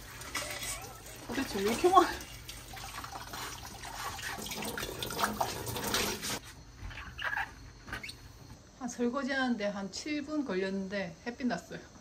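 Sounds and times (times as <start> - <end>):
dishes being washed: 0.0 - 6.4
tap water running into sink: 0.0 - 6.4.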